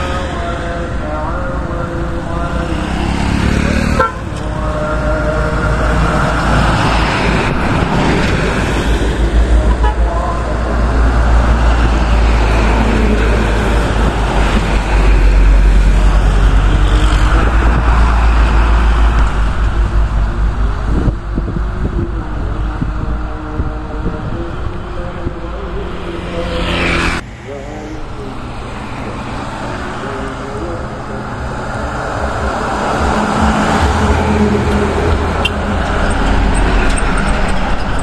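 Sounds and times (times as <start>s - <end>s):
diesel trucks passing: 0.0s - 38.0s
tyre noise on road: 0.0s - 38.0s.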